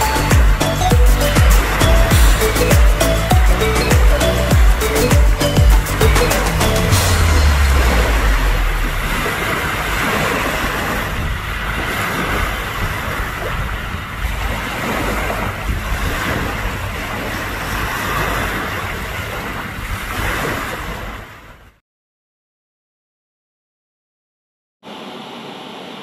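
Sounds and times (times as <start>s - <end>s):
seawater washing at shore: 0.0s - 21.6s, 24.8s - 26.0s
wind buffeting microphone: 6.6s - 21.2s.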